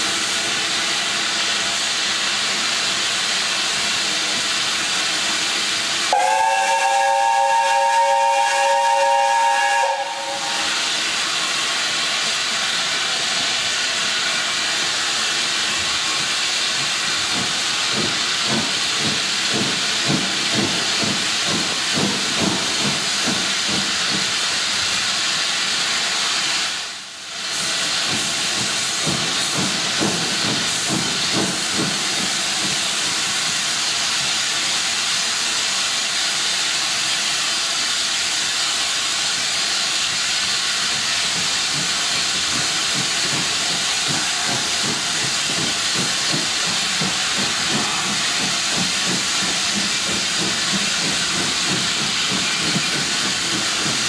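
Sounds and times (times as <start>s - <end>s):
steam locomotive hissing: 0.0s - 54.0s.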